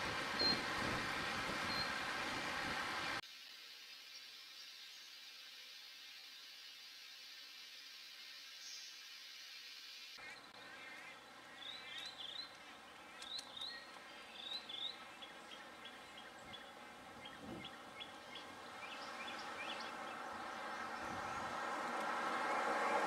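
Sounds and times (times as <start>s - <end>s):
birds chirping: 0.0s - 0.8s, 1.6s - 3.2s, 10.1s - 23.0s.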